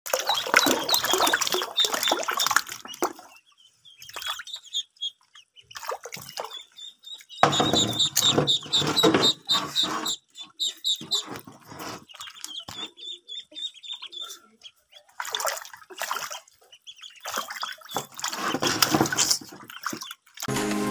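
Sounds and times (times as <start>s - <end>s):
splashing in shallow water: 0.1s - 3.4s, 4.0s - 4.6s, 5.6s - 6.7s, 15.0s - 20.5s
ducklings peeping: 0.1s - 20.4s.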